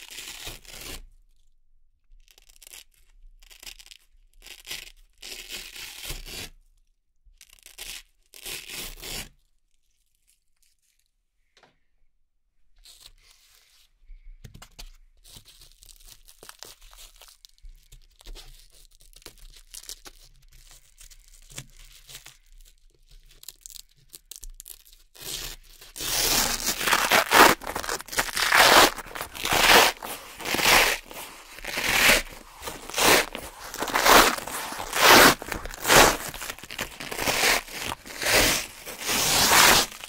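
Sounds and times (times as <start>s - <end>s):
hook-and-loop strip ripping: 0.0s - 1.0s, 23.4s - 40.0s
hook-and-loop strips rubbed by hand: 25.2s - 40.0s.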